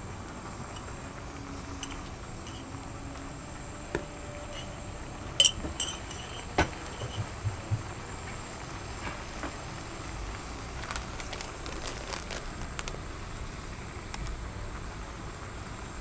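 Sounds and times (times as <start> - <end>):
steady background noise: 0.0 - 16.0
dishes and utensils clinking: 1.6 - 3.0, 4.0 - 7.8.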